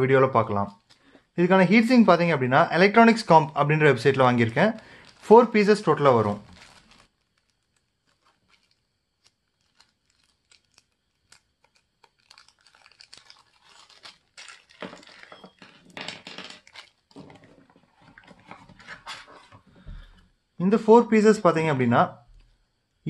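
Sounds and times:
plastic packet crinkling: 0.7s - 1.2s, 2.9s - 18.8s.

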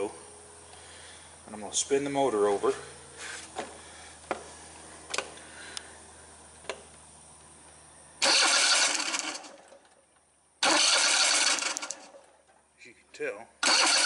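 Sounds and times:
starter cranking engine: 8.2s - 10.0s, 10.6s - 12.5s, 13.6s - 14.0s.

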